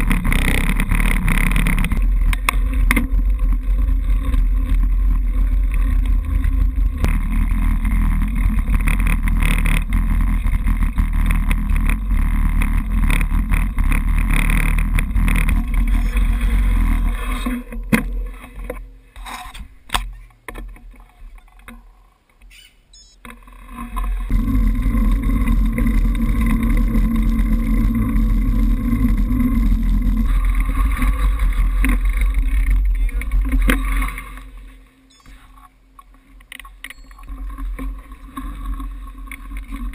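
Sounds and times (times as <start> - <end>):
road noise: 0.0 - 39.9
faint clicks and knocks: 31.4 - 39.9.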